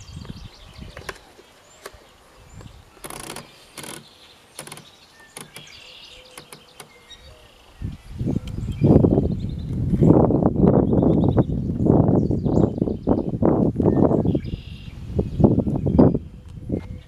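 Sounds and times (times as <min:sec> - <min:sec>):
faint chirping: 0:00.0 - 0:09.7.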